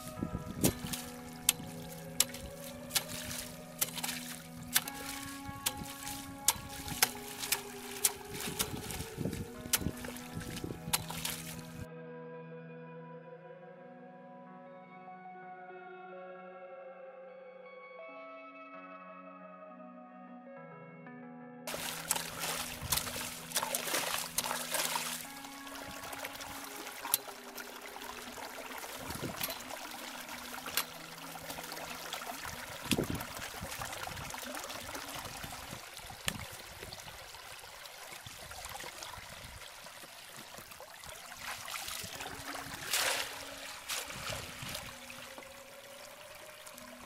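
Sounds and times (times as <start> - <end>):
muddy water trickling: 0.0 - 11.9, 21.7 - 47.0
sharp splashes: 0.0 - 11.9, 21.7 - 46.9.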